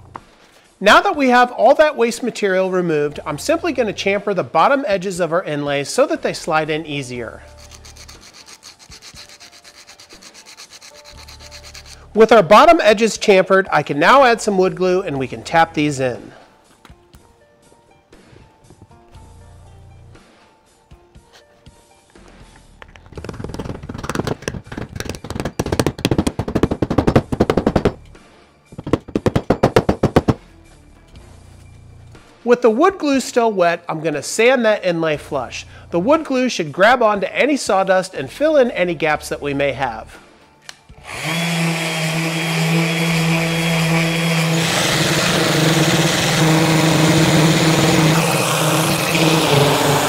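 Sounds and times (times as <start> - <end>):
orbital sander sanding wood: 7.9 - 12.0, 41.0 - 50.0
rubber mallet tapping wood: 23.2 - 28.0, 28.8 - 30.4.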